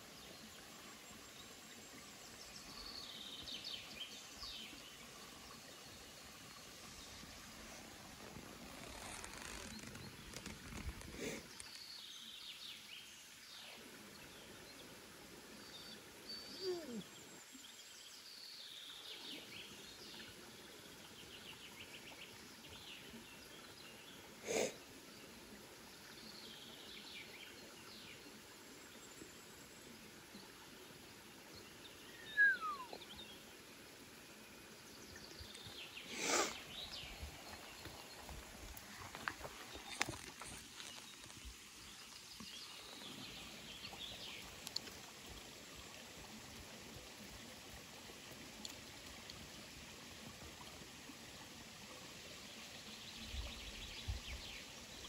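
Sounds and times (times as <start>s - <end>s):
small birds chirping: 32.0s - 33.4s
calls sliding down in pitch: 32.2s - 33.0s.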